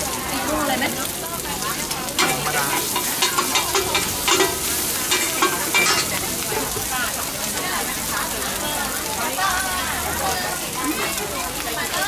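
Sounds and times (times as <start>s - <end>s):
food sizzling on flat pan: 0.0s - 12.0s
metal spatulas scraping pan: 2.2s - 6.9s.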